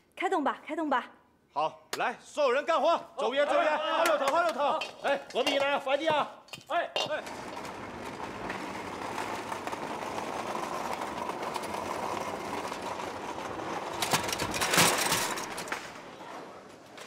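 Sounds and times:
chairs clattering: 7.0 - 16.0
trolley of chairs rattling: 7.0 - 16.1.

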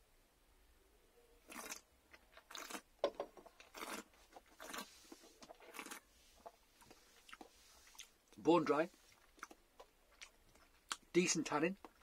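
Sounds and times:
wet sucking and swishing mouth: 3.7 - 8.2.

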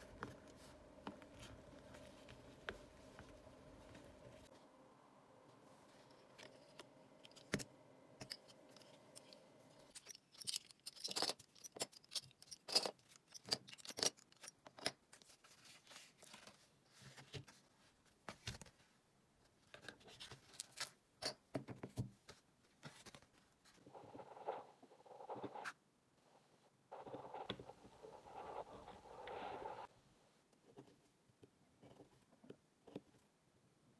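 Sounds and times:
faint steady hum: 0.0 - 11.2, 23.1 - 33.9.

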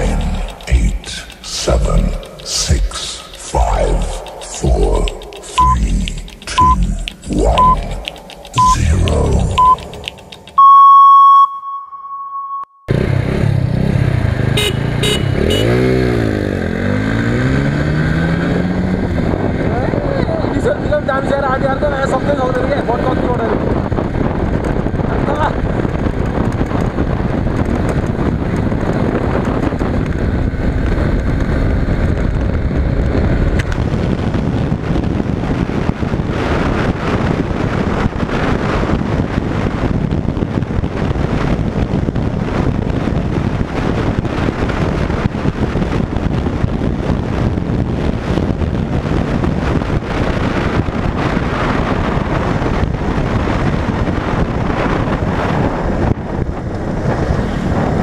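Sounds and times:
motorcycle engine running: 0.0 - 10.6, 12.9 - 17.8
wind noise on microphone: 13.0 - 58.0.

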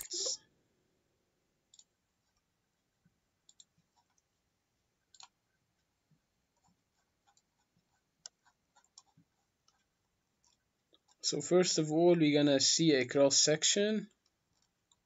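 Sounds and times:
faint mouse clicks: 1.7 - 2.5, 3.4 - 4.3, 5.0 - 11.2.

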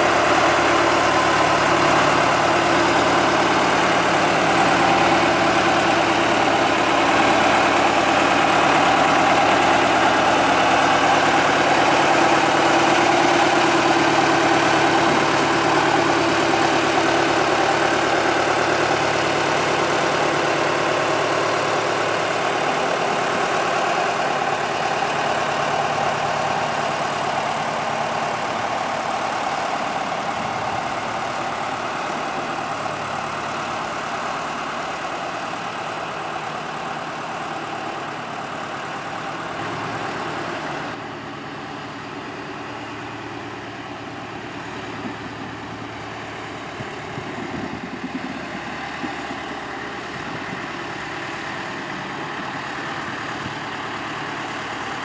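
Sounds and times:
diesel locomotive engine idling: 0.0 - 55.0.

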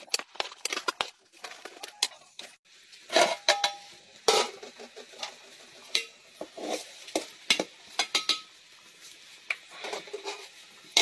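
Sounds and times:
metal cookware knocking and clinking: 3.1 - 5.3, 5.9 - 6.2, 7.5 - 8.6.

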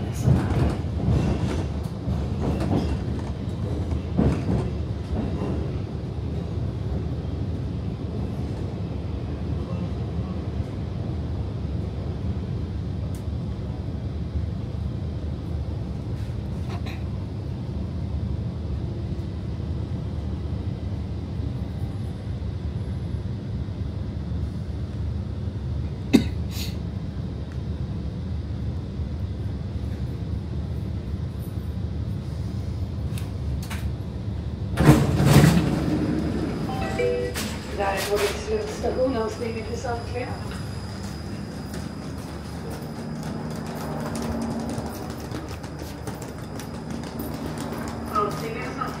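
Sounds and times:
metro train rumbling: 0.0 - 49.0.

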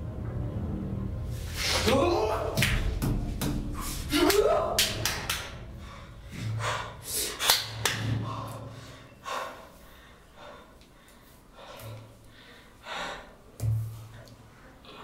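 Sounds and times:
man breathing heavily and gasping: 5.1 - 13.6.

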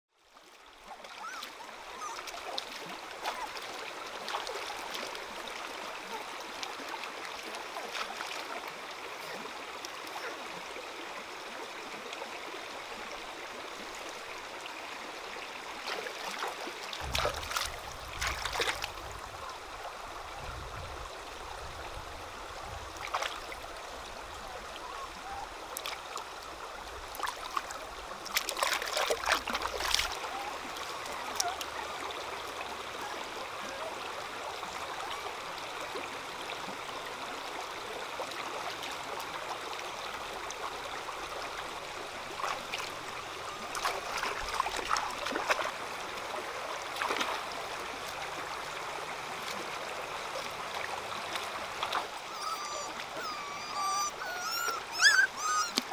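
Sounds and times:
stream running over rocks: 0.1 - 55.9
water splashing: 1.0 - 10.4, 15.7 - 32.1, 41.2 - 55.9.

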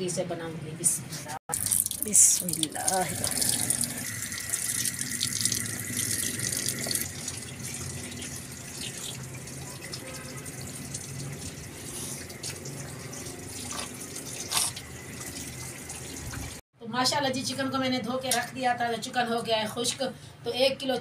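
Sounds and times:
tap water running and splashing: 1.5 - 16.6.

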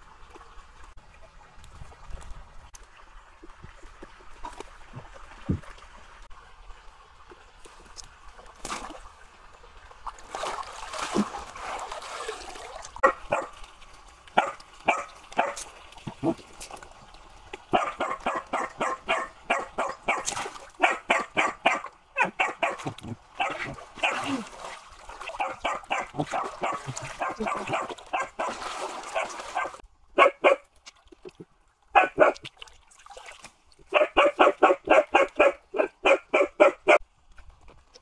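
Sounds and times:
dog yapping: 13.0 - 13.5, 17.8 - 24.3, 25.4 - 28.6, 29.2 - 30.6, 32.0 - 32.4, 33.9 - 37.0.

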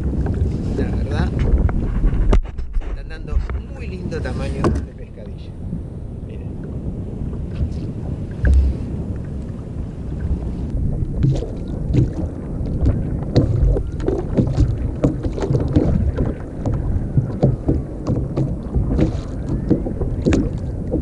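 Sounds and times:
water slapping against kayak hull: 0.0 - 3.8, 6.9 - 21.0
wind on microphone: 0.0 - 21.0.

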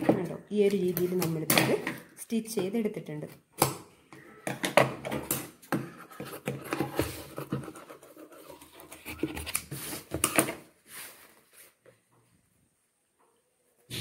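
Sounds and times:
fabric rustling and scraping: 10.8 - 11.8.

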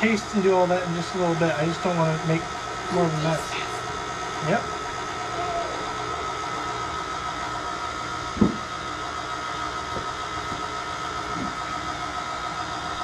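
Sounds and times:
electric mixer whining: 0.0 - 13.0.

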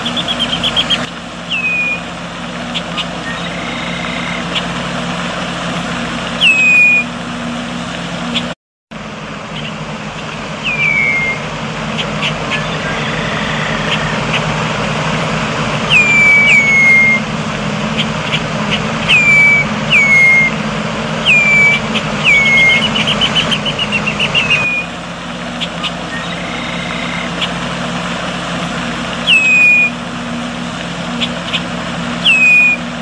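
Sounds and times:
blackbird whistles and chatter: 0.0 - 2.1, 2.8 - 4.7, 6.4 - 7.1, 10.6 - 14.5, 15.9 - 17.2, 18.0 - 20.6, 21.2 - 24.9, 25.6 - 27.6, 29.2 - 30.0, 31.2 - 32.9
low background rumble: 0.0 - 33.0.

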